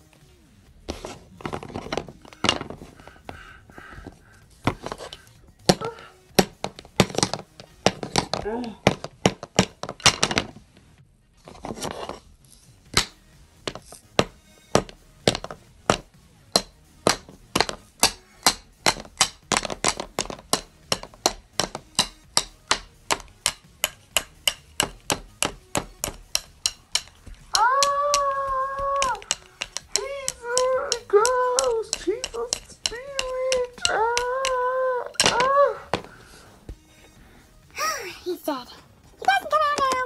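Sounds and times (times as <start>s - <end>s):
rapid sharp knocks: 14.2s - 34.6s.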